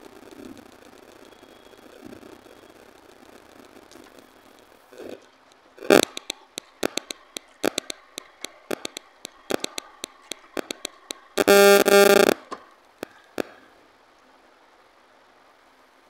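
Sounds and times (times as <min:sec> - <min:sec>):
loud steady pitched tone: 0:05.8 - 0:12.4
fingers tapping on steel plate: 0:05.9 - 0:08.1, 0:08.7 - 0:10.0, 0:10.6 - 0:12.3.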